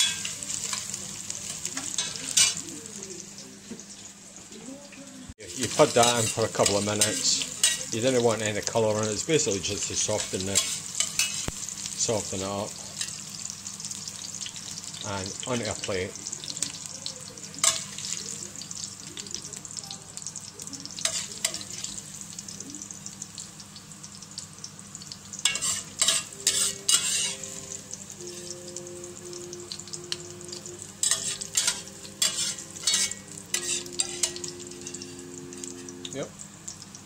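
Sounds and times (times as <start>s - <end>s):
oil sizzling in a pot: 0.0s - 37.0s
metal spoon clattering on pot: 31.0s - 35.1s.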